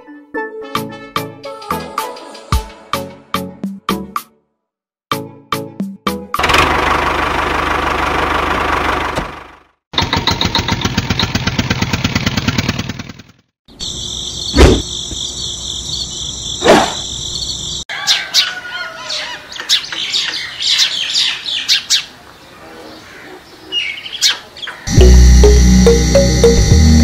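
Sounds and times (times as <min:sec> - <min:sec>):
engine chugging: 0:06.4 - 0:13.4
birds chirping: 0:13.7 - 0:25.0
loud thumps: 0:14.6 - 0:14.9
high whine: 0:24.9 - 0:27.0.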